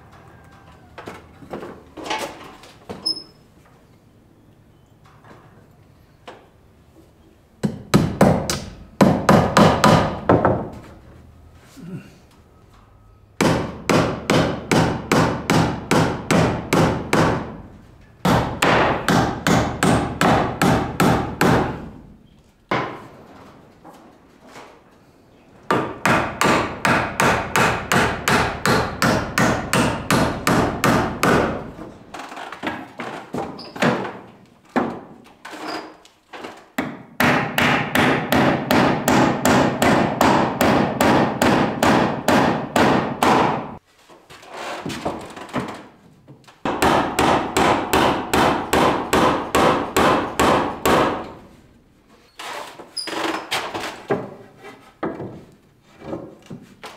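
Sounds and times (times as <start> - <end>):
hammer driving nails into wood: 13.4 - 17.6, 18.2 - 21.9, 25.7 - 34.2, 36.4 - 43.8, 46.6 - 51.4.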